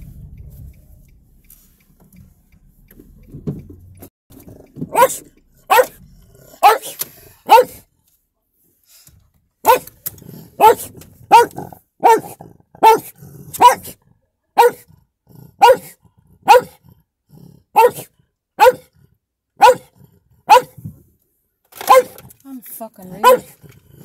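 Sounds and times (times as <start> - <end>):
dog barking: 4.9 - 6.0, 6.6 - 7.9, 9.6 - 9.9, 10.6 - 14.0, 14.6 - 14.9, 15.6 - 16.8, 17.7 - 18.9, 19.6 - 20.8, 21.8 - 22.2, 23.2 - 23.6.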